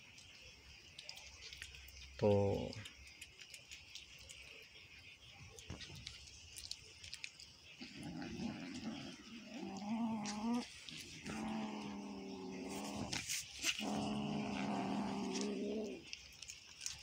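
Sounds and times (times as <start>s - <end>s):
cat eating with soft clicks: 0.0s - 12.0s, 13.1s - 17.0s
cat growling: 7.8s - 16.2s.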